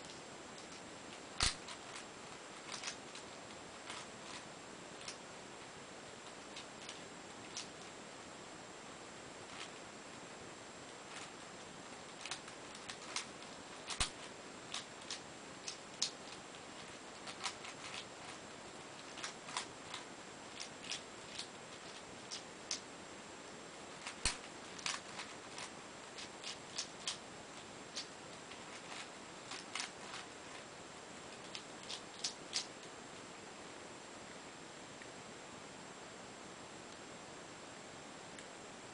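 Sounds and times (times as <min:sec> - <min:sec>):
plastic puzzle clicking: 0:02.6 - 0:04.4, 0:12.1 - 0:18.4, 0:24.0 - 0:27.2, 0:31.3 - 0:32.7.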